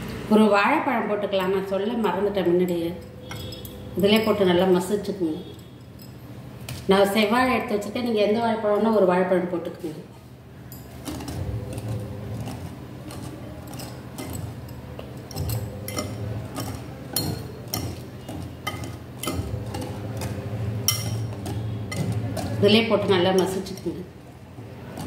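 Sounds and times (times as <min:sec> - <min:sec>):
whisk clinking against glass bowl: 0:02.7 - 0:04.4, 0:10.8 - 0:24.0
steady low hum: 0:10.3 - 0:25.0.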